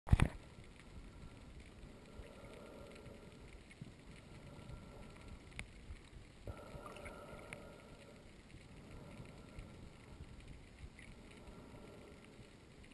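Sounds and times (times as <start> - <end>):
low underwater hiss: 0.2 - 12.9
faint steady tone: 0.3 - 12.9.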